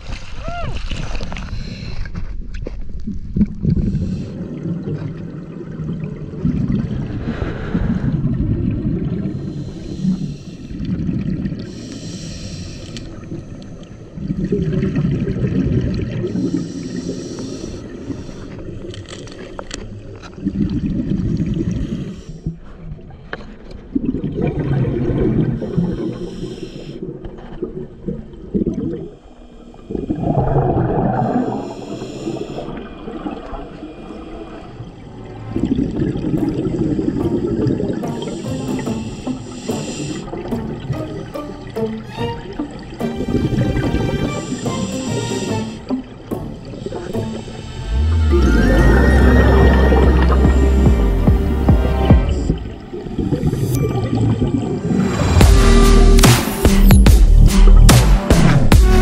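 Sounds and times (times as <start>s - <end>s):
hissing breath through regulator: 3.8s - 4.4s, 9.2s - 10.9s, 11.6s - 13.7s, 16.2s - 19.4s, 21.7s - 22.6s, 25.6s - 27.1s, 31.2s - 32.9s, 37.1s - 40.6s, 43.2s - 51.6s
underwater regulator bubbling: 23.9s - 56.2s.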